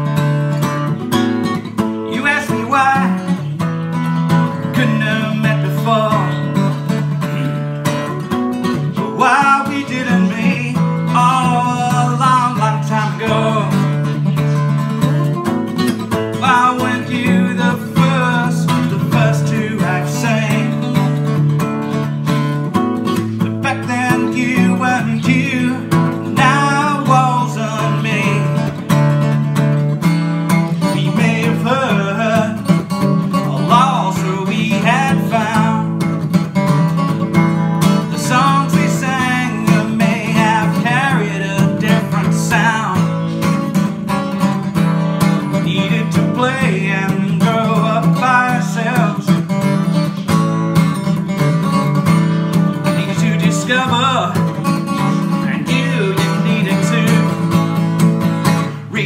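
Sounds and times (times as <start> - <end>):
acoustic guitar strumming: 0.0 - 59.0.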